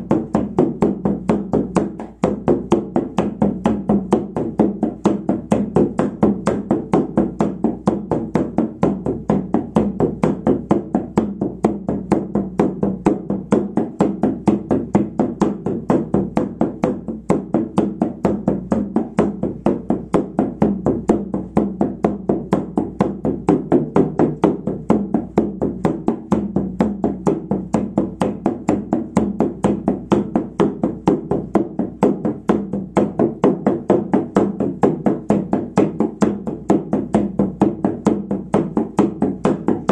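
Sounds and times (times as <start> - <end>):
frame drum beating: 0.0 - 39.9.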